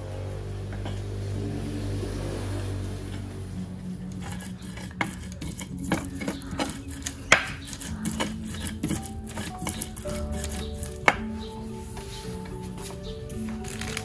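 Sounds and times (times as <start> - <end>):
steady low hum: 0.0 - 14.0
pestle grinding in stone mortar: 4.0 - 12.2.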